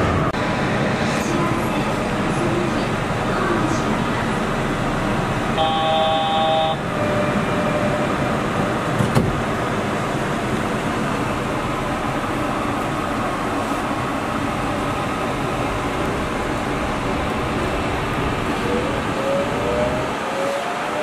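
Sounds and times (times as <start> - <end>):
train running heard from cabin: 0.0 - 21.0
steady multi-pitched tone: 5.6 - 8.2.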